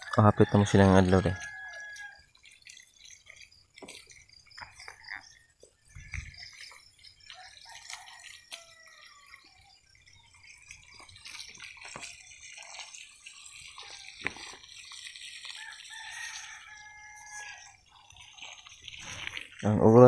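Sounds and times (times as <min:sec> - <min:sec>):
hose water splashing on soil: 0:00.0 - 0:20.0.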